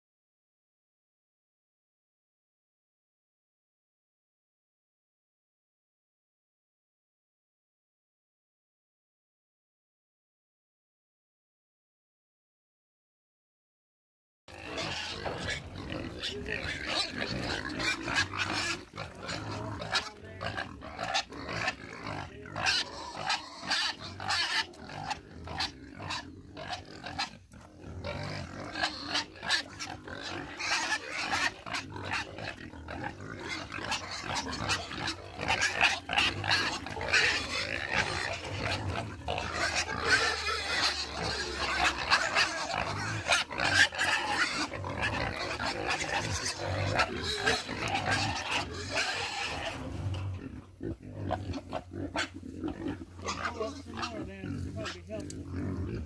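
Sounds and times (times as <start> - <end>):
pigs grunting and squealing: 14.5 - 56.0.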